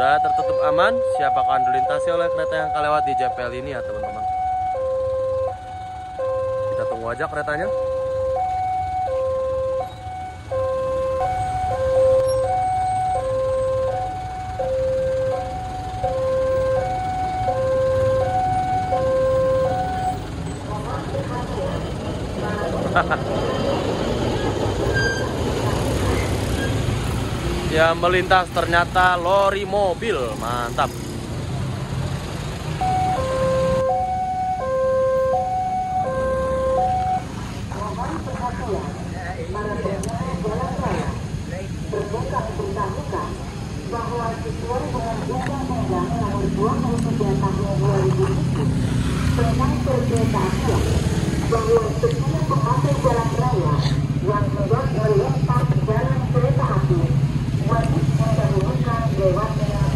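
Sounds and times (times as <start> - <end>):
level crossing two-tone alarm: 0.0 - 20.3, 32.8 - 37.3.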